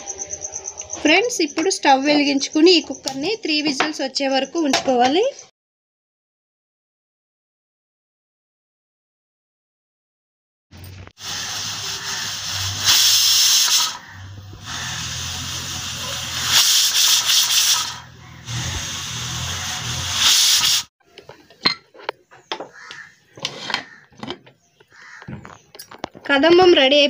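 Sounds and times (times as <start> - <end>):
pressure cooker whistling: 11.2 - 20.9.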